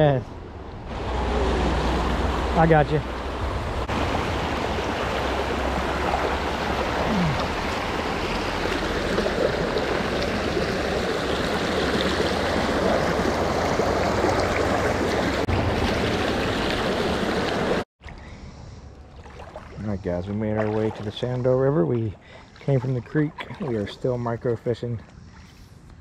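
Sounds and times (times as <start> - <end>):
water rushing over rocks: 0.9 - 17.8.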